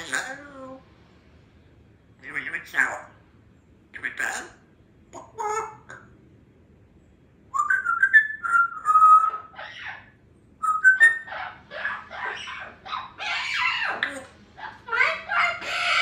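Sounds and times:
parrot chattering speech mimicry: 0.0s - 0.8s, 2.2s - 3.2s, 4.0s - 6.1s, 7.7s - 16.0s
parrot whistling: 7.5s - 16.0s.

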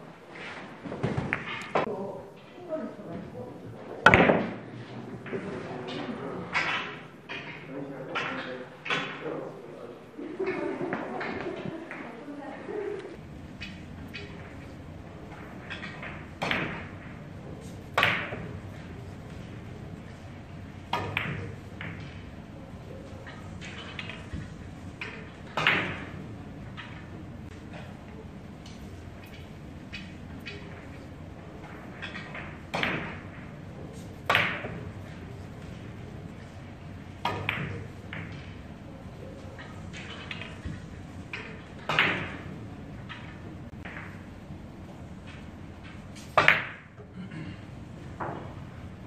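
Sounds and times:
cue tip striking ball: 4.0s - 4.6s, 17.9s - 18.6s, 34.2s - 35.0s, 46.3s - 46.9s
billiard balls clicking: 13.0s - 22.4s, 23.0s - 44.4s, 45.1s - 47.0s.

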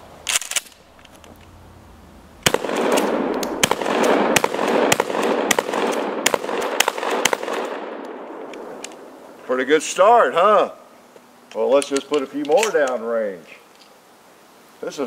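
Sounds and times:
gun mechanical clack: 0.2s - 1.5s, 11.5s - 13.0s
shotgun blasts with echo: 2.4s - 8.8s.

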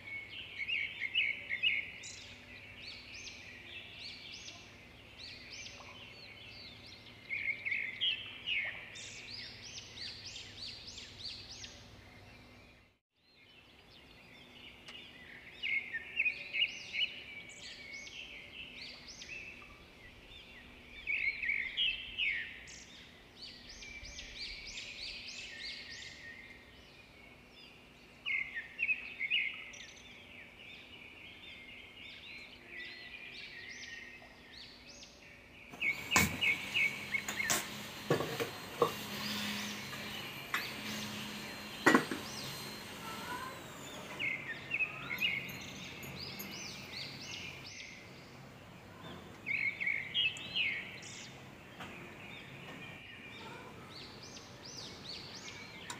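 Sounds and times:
small birds chirping: 0.0s - 55.9s
gas hissing: 35.8s - 44.2s.

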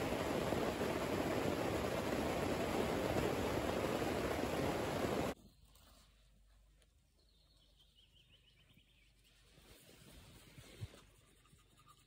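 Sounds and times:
rain on a canvas tent: 0.0s - 5.4s.

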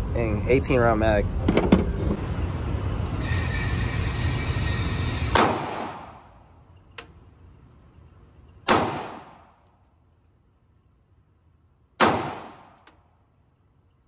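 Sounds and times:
pistol shots with echo: 8.7s - 9.5s, 12.0s - 12.8s.

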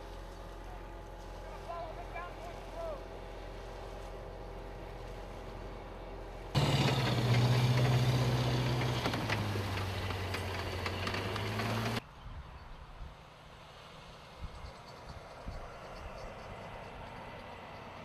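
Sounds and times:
diesel engine running hard: 0.0s - 12.0s
vehicle engine running steadily: 0.0s - 18.0s.

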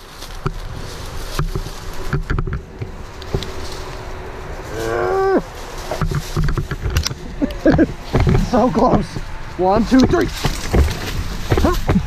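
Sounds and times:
brush rustling: 0.0s - 12.0s
person groaning with strain: 4.7s - 5.5s
log knocks: 5.8s - 9.3s, 9.9s - 12.0s.

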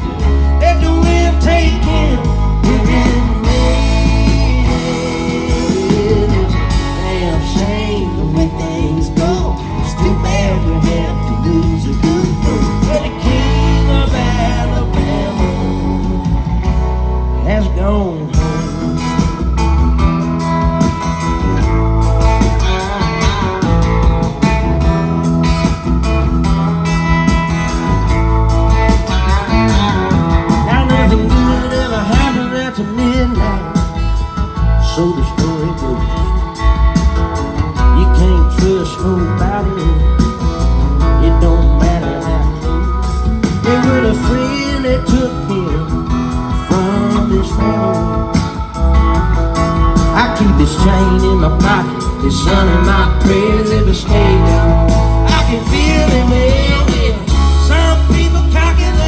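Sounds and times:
person singing: 0.0s - 16.3s, 17.2s - 19.5s, 30.5s - 36.8s, 37.4s - 48.8s, 49.9s - 59.0s
live country band playing: 0.0s - 59.0s.

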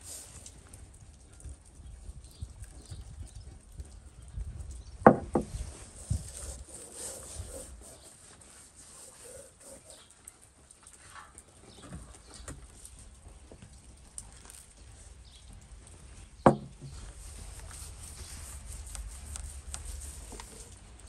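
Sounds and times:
salt pattering on fish: 0.0s - 4.9s
hands rubbing fish scales: 5.5s - 10.1s, 16.8s - 20.9s
sharp knock: 16.5s - 16.7s.

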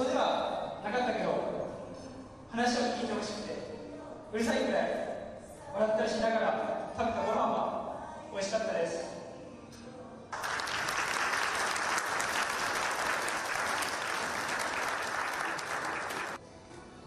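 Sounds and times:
audience applauding: 10.4s - 16.4s.

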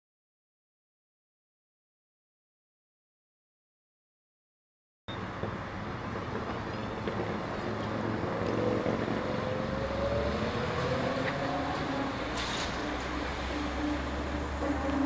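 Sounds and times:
street traffic: 5.1s - 15.0s.

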